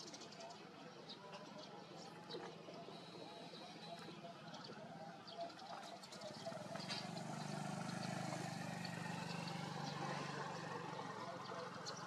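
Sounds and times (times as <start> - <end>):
engine humming: 6.3 - 12.0.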